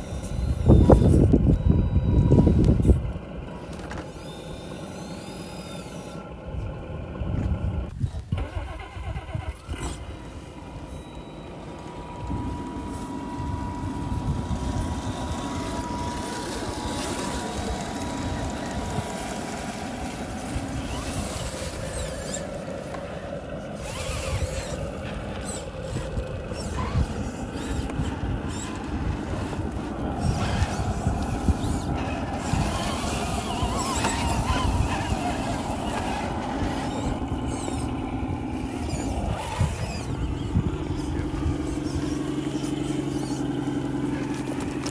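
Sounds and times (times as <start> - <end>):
electric motors whining: 0.0 - 44.9
low rumble: 6.5 - 42.5
stones crunching under tyres: 9.6 - 44.9.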